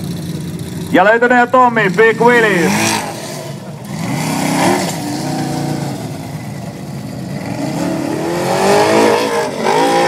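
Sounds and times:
engine revving hard: 0:02.4 - 0:06.0, 0:07.3 - 0:10.0.

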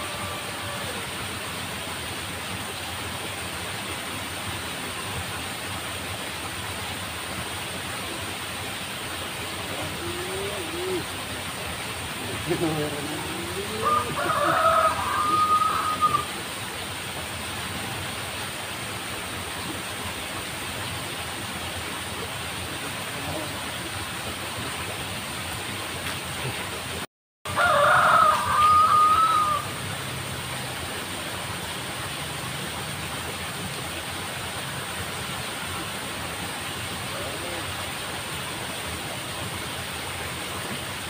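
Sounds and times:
rooster crowing: 0:00.0 - 0:01.1, 0:12.5 - 0:16.4, 0:27.5 - 0:29.8.

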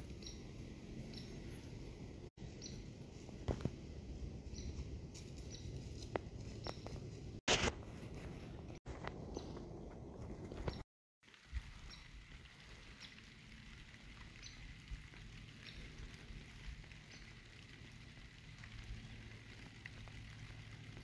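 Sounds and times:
light ticks and patter: 0:09.0 - 0:21.0.

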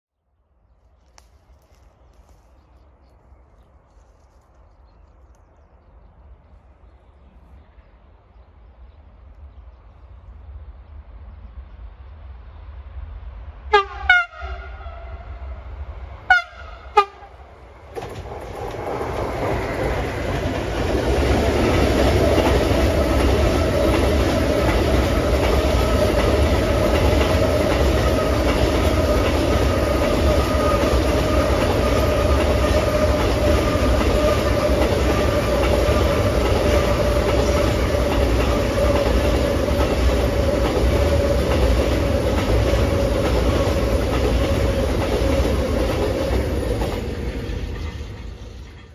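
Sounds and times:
train wheels rumbling on rail: 0:05.4 - 0:48.9
locomotive horn blasts: 0:13.7 - 0:15.5, 0:16.3 - 0:17.4.

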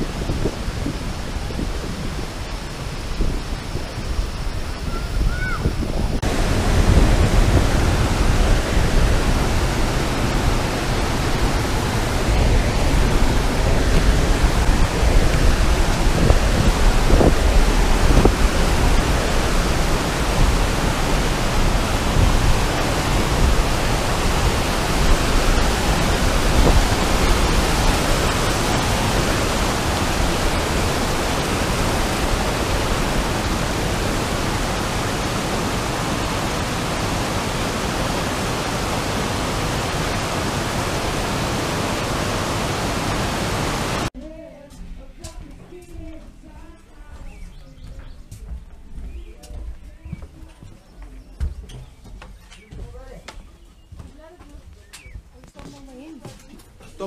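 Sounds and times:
river rushing over boulders: 0:00.0 - 0:44.1.

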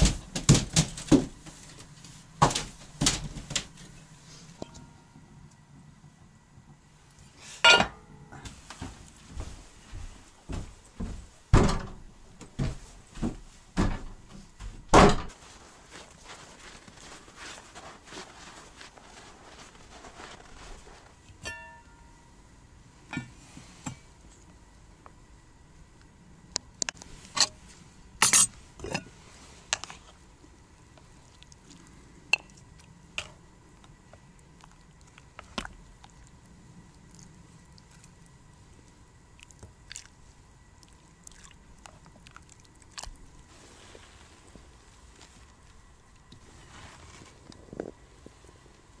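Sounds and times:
ladle clinking on metal pot: 0:07.7 - 0:08.1, 0:21.4 - 0:22.1
footsteps on wooden floor: 0:08.8 - 0:11.7, 0:12.4 - 0:14.9
door slamming shut: 0:14.9 - 0:15.3.

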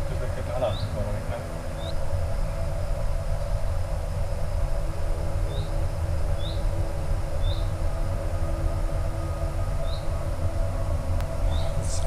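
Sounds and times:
wind rumble on microphone: 0:00.0 - 0:12.0
bird chirping: 0:00.6 - 0:01.1, 0:01.7 - 0:02.0, 0:05.5 - 0:06.7, 0:07.4 - 0:07.8, 0:09.8 - 0:10.3, 0:11.3 - 0:12.0.

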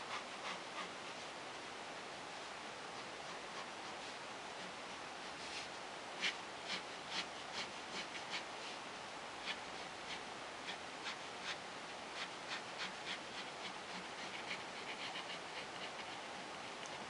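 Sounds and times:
pen scratching on paper: 0:03.0 - 0:08.8, 0:09.4 - 0:17.0.

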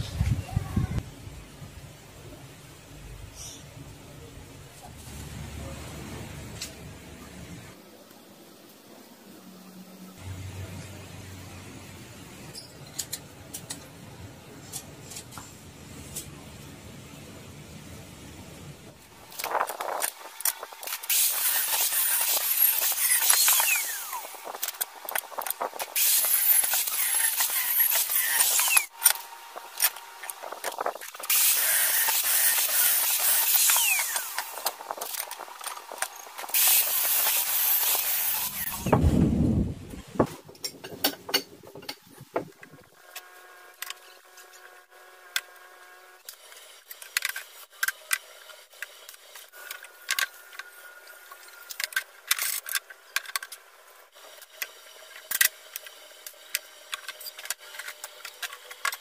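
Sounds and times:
angle grinder cutting steel: 0:20.7 - 0:38.9.

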